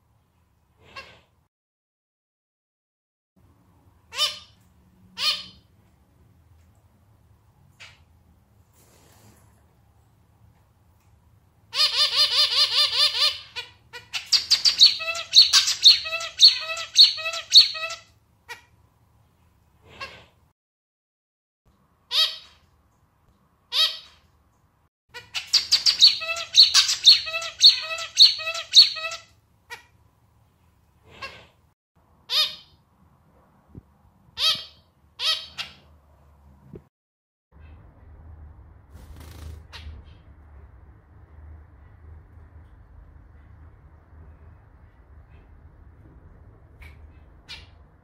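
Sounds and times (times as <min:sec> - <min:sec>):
finch singing: 0:11.8 - 0:18.0, 0:25.2 - 0:29.3.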